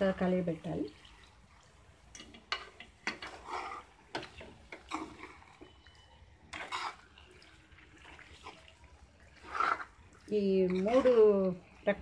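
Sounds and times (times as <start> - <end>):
metal spoon scraping a pan: 2.2 - 5.8, 6.5 - 7.2, 9.3 - 11.6.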